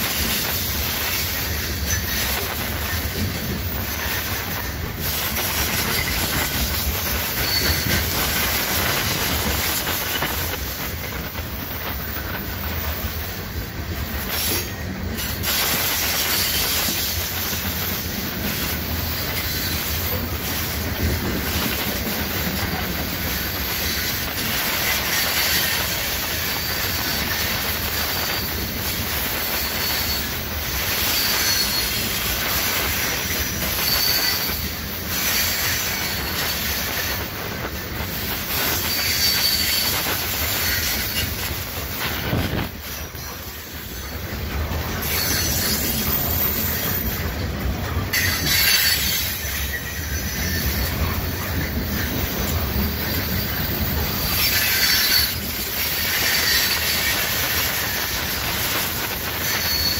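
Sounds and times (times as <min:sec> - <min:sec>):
train wheels clattering on rails: 0:00.0 - 0:59.9
faint wheel squeal: 0:05.7 - 0:08.2, 0:29.4 - 0:30.4, 0:31.0 - 0:32.2, 0:33.0 - 0:37.2, 0:38.7 - 0:41.4, 0:44.9 - 0:47.3, 0:59.4 - 0:59.9.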